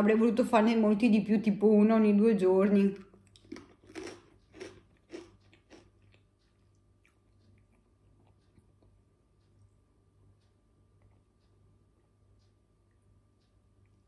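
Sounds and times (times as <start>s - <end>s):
potato chips crunching: 3.0s - 6.3s.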